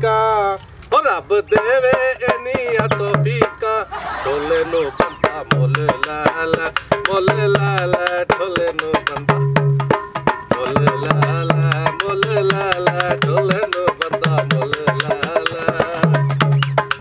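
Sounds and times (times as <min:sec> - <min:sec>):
wavering melody: 0:03.7 - 0:05.7
hand drum beat: 0:05.3 - 0:17.0.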